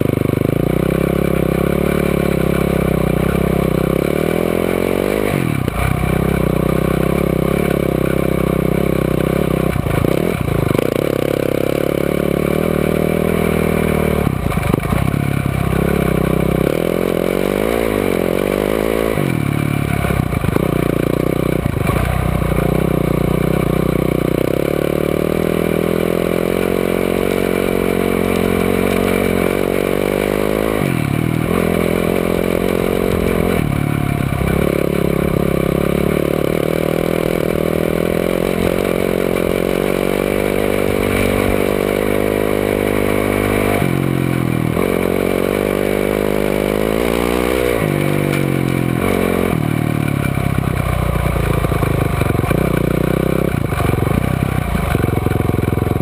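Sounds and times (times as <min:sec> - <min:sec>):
off-road vehicle engine revving: 0:00.0 - 0:56.0.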